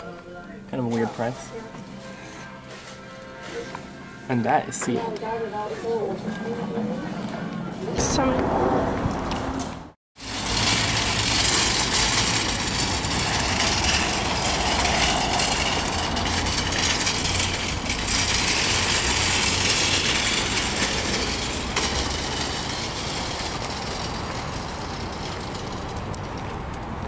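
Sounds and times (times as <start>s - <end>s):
shopping cart rattling on asphalt: 10.2s - 26.6s.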